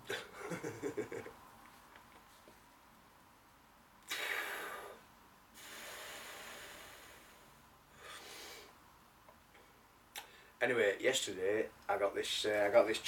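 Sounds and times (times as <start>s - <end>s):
long exhale of smoke: 4.1s - 5.0s, 5.6s - 8.8s
sharp inhale: 4.1s - 5.0s, 5.6s - 8.8s.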